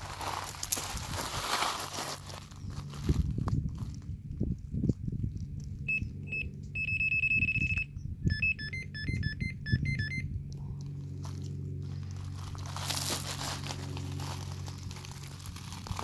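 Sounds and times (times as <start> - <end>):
electronic bite alarm beeping: 5.9 - 10.3.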